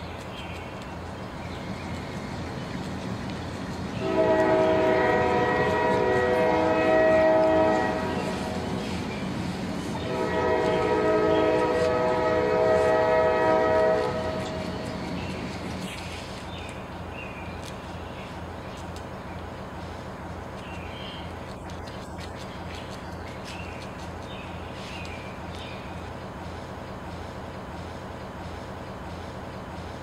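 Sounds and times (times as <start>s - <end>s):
train horn blasts: 4.0s - 8.8s, 10.0s - 14.9s.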